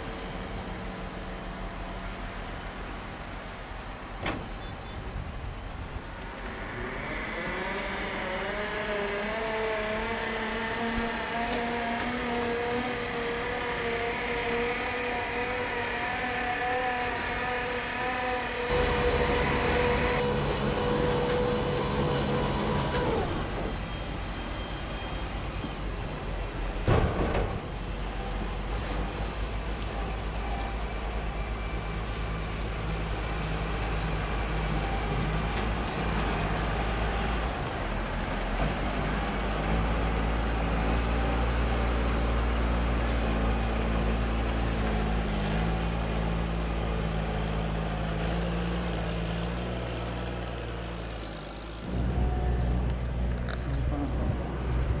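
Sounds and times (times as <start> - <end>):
tractor engine running: 18.7 - 24.1.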